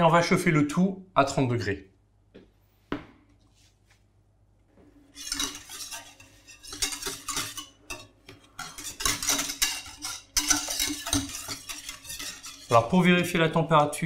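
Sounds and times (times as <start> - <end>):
whisk scraping metal pan: 5.0 - 14.0.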